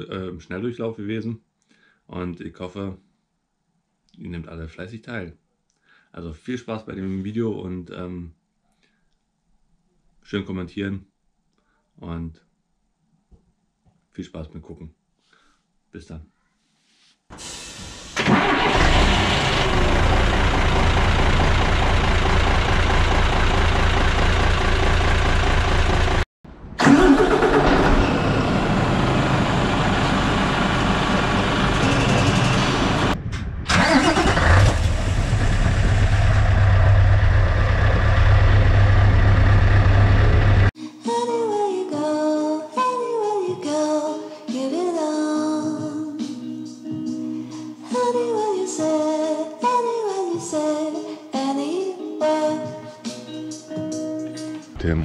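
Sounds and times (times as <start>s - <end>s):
diesel truck engine starting: 17.4s - 40.7s
background music with singing: 40.8s - 54.8s.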